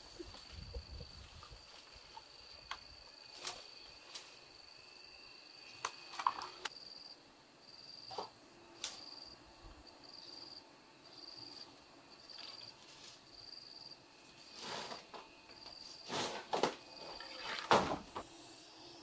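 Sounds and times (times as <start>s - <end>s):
rustles and knocks in undergrowth: 0.0s - 4.6s, 11.4s - 13.6s, 14.3s - 18.3s
insects chirring: 0.0s - 19.0s.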